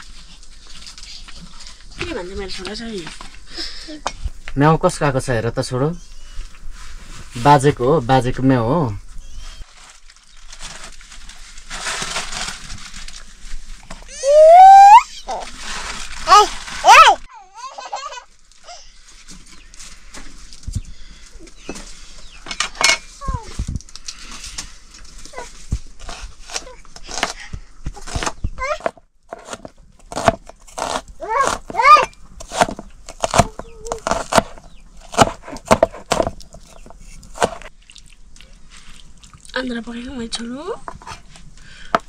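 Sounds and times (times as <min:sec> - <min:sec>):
animal call wavering in pitch: 0:14.1 - 0:15.4
blade chopping into wood: 0:29.3 - 0:36.4, 0:37.3 - 0:37.7.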